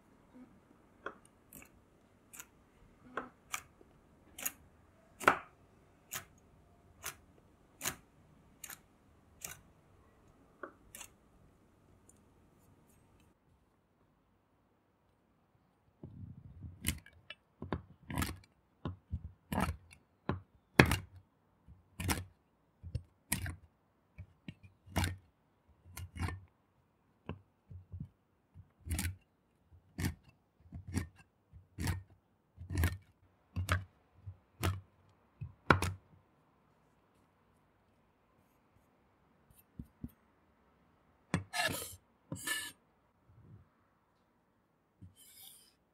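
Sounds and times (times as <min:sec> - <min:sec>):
knife chopping nuts on wooden board: 0:04.4 - 0:06.4, 0:16.0 - 0:21.2, 0:29.8 - 0:36.1.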